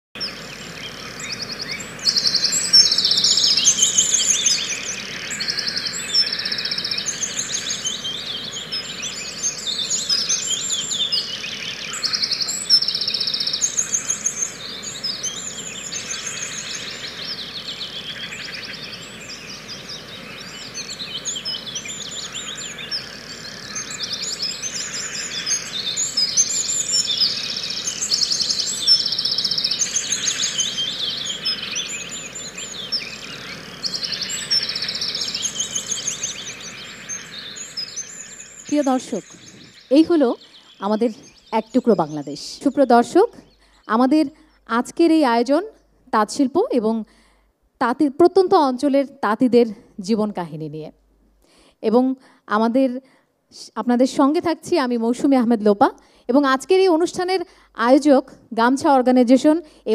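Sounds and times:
birds chirping and trilling: 0.2 - 50.9.

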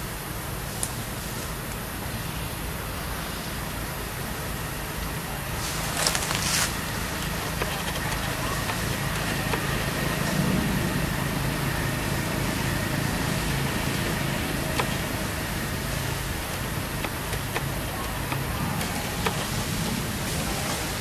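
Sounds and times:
low traffic hum: 0.0 - 21.0
faint clicks: 5.8 - 21.0.

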